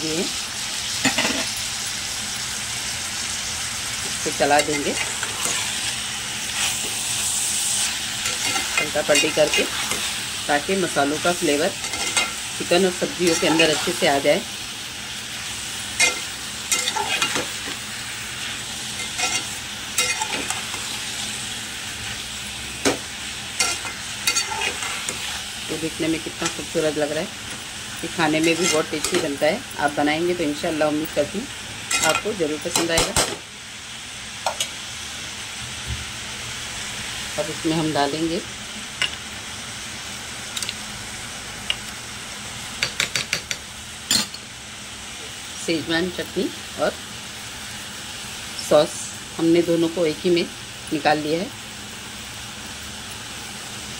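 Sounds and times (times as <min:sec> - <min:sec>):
food sizzling in a metal pot: 0:00.0 - 0:53.9
metal spatula scraping a pot: 0:16.0 - 0:17.7, 0:19.0 - 0:21.0, 0:23.6 - 0:25.5.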